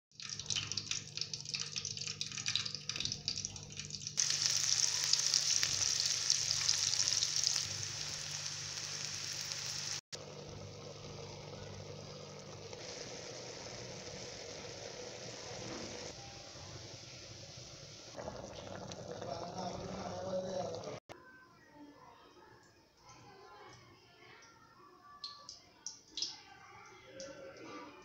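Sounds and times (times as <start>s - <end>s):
meat sizzling in a pot: 4.0s - 21.0s
onions sizzling in hot oil: 4.2s - 19.7s.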